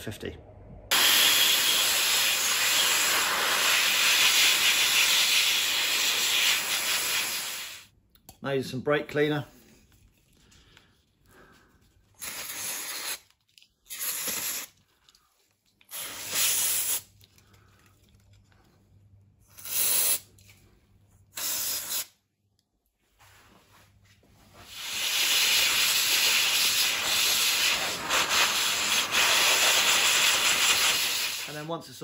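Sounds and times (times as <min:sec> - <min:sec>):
aerosol spray hissing bursts: 0:00.9 - 0:07.9, 0:12.2 - 0:13.2, 0:13.9 - 0:14.7, 0:15.9 - 0:17.1, 0:19.5 - 0:20.3, 0:21.3 - 0:22.1, 0:24.6 - 0:31.7
air hose blowing hiss: 0:00.9 - 0:07.9, 0:12.2 - 0:13.2, 0:13.9 - 0:14.7, 0:15.9 - 0:17.1, 0:21.4 - 0:22.1, 0:24.6 - 0:31.7.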